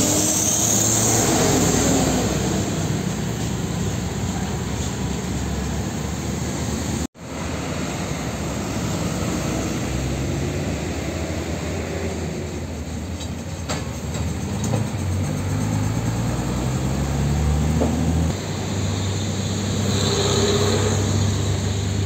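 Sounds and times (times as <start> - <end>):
tanker truck driving by: 0.0 - 22.0
trucks and motorcycles passing: 0.0 - 22.0.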